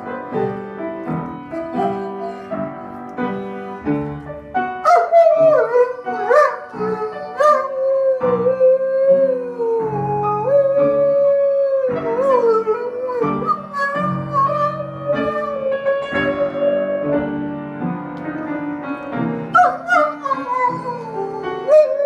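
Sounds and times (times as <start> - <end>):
piano chords: 0.0 - 22.0
dog howling: 1.5 - 2.7, 4.8 - 17.4, 19.6 - 22.0.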